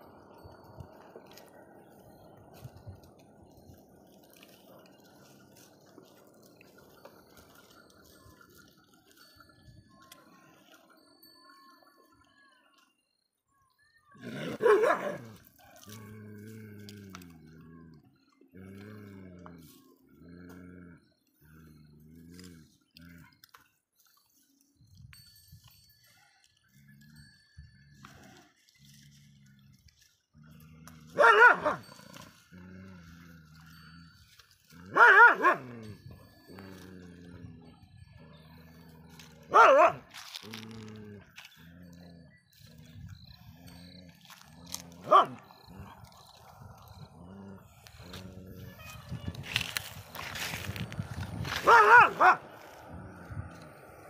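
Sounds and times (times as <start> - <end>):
dog barking and snarling: 14.2 - 17.4, 30.7 - 33.2, 34.7 - 37.5, 38.3 - 42.1, 43.6 - 54.0
dog barking: 14.5 - 15.9, 31.1 - 31.9, 34.9 - 35.8, 39.5 - 40.1, 45.0 - 45.4, 51.6 - 52.5.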